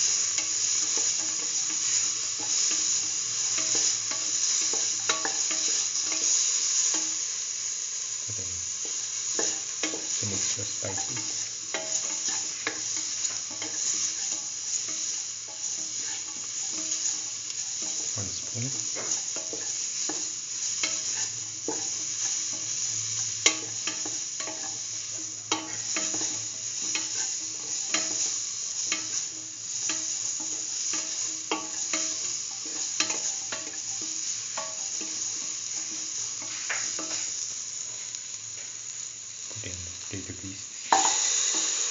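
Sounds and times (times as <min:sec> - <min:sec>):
vegetables sizzling in oil: 0:00.0 - 0:41.9.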